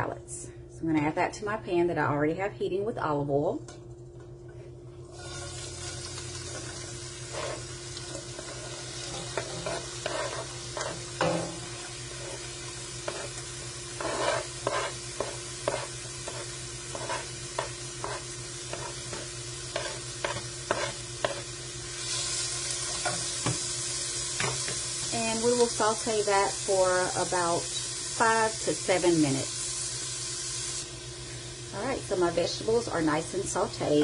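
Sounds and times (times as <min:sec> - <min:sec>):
vegetables sizzling in hot oil: 0:05.1 - 0:34.0
scrapes and knocks on cutting board: 0:14.0 - 0:18.9.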